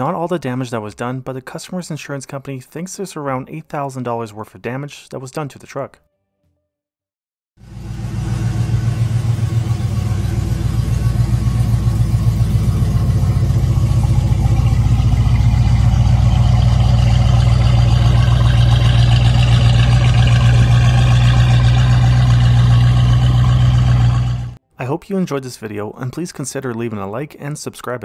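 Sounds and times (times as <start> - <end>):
car engine idling: 7.6 - 24.6.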